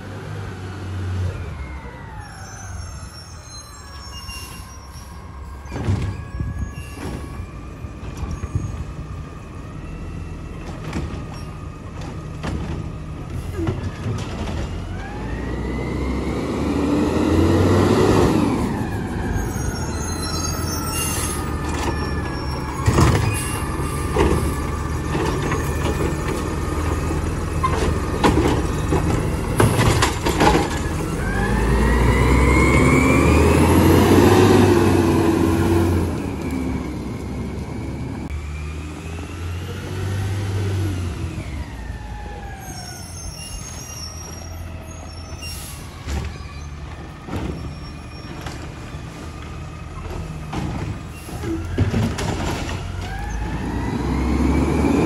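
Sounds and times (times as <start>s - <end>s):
clanks and bangs of cart dumping: 5.7s - 8.9s, 10.6s - 14.9s, 20.5s - 31.6s, 45.6s - 54.8s
garbage truck diesel engine revving: 9.7s - 42.7s, 44.4s - 55.0s.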